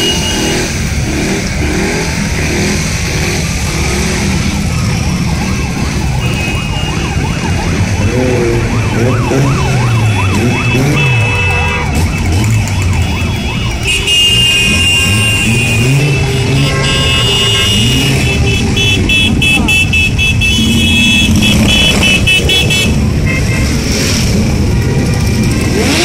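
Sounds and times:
horn toots: 0.0 - 2.7, 8.0 - 24.4
motorcycle engines passing slowly: 0.1 - 26.0
fast warbling siren: 4.4 - 23.4.

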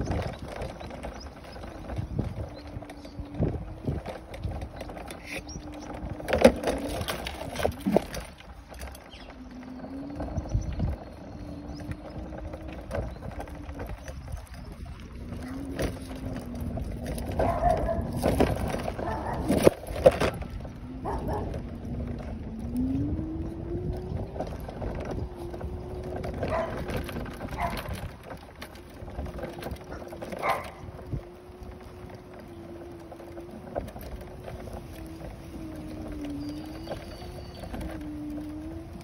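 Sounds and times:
small motor humming: 0.0 - 39.0.

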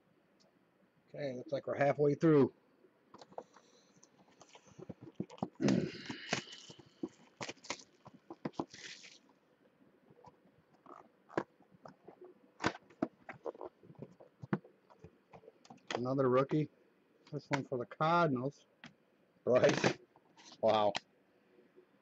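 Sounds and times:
packaging crinkling: 4.3 - 9.3.

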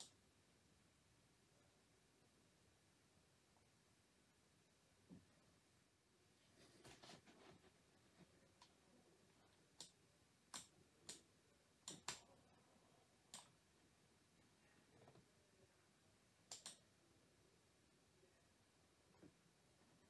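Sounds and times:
computer mouse clicks: 9.8 - 11.2, 11.8 - 12.3, 16.5 - 16.8.

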